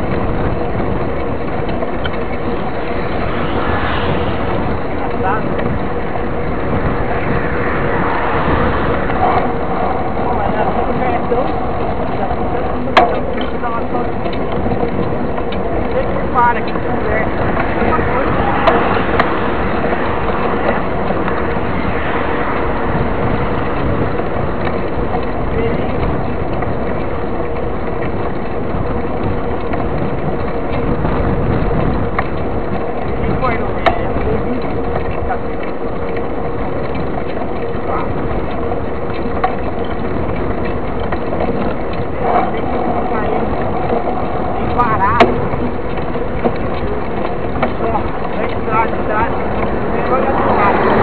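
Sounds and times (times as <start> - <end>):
bike tyres rumbling on asphalt: 0.0 - 51.0
wind: 0.0 - 51.0.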